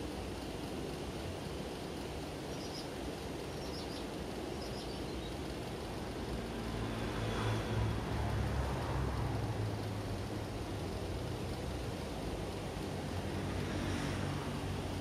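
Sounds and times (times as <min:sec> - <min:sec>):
low background noise: 0:00.0 - 0:15.0
low engine hum: 0:00.0 - 0:15.0
high bird chirps: 0:02.5 - 0:02.9, 0:03.5 - 0:05.4.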